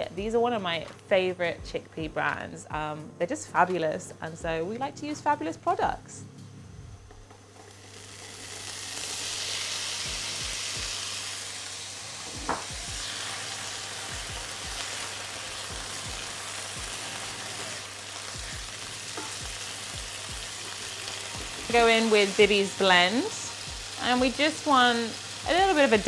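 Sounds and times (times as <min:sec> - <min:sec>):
food sizzling in hot oil: 0:07.5 - 0:26.0.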